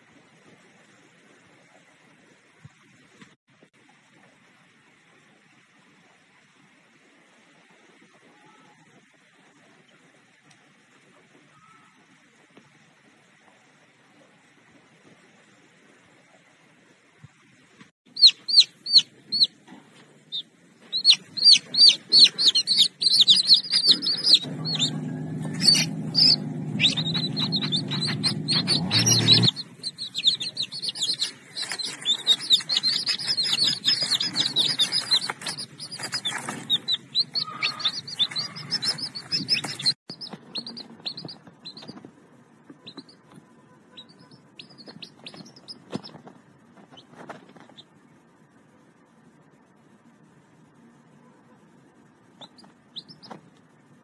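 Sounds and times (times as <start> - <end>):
chicks peeping: 18.1 - 42.1, 42.7 - 47.9, 52.4 - 53.4.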